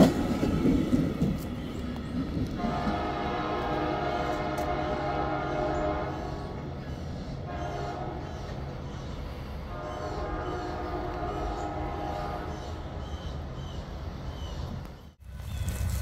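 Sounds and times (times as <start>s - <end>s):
low rumble of train: 0.0s - 16.0s
train horn: 2.4s - 6.7s, 7.4s - 8.6s, 9.7s - 13.0s.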